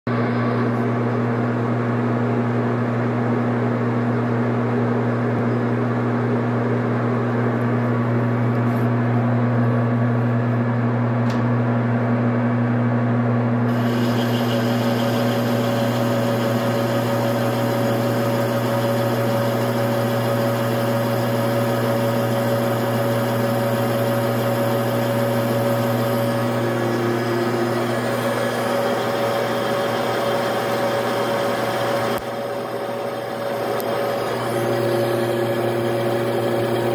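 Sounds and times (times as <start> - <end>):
lathe tool cutting whine: 13.7 - 36.9
metal lathe humming: 13.7 - 36.9.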